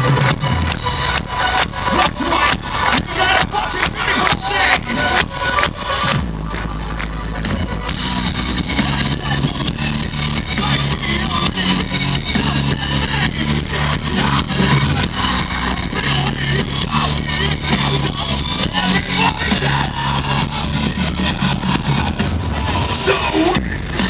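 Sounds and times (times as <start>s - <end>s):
heavy bass: 0.0s - 24.0s
rock guitar: 0.0s - 24.0s
steady drum beat: 0.0s - 24.0s.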